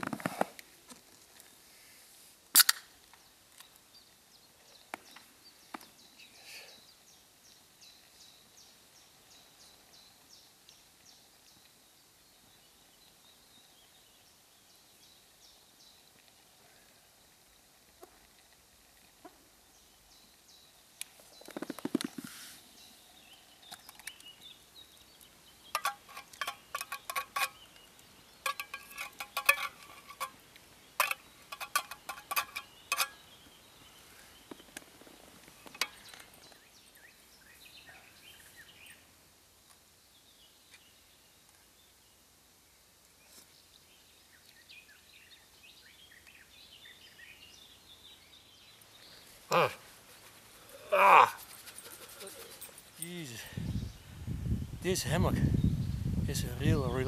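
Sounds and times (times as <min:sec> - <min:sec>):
faint birdsong: 0:02.8 - 0:57.0
metal cookware clinking: 0:28.5 - 0:30.3
rustling: 0:48.8 - 0:53.5.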